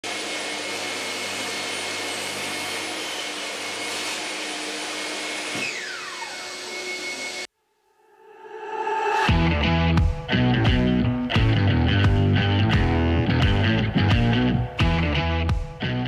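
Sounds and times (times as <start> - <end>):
table saw motor whine: 0.1 - 7.5
dust extractor rushing air: 8.1 - 10.1.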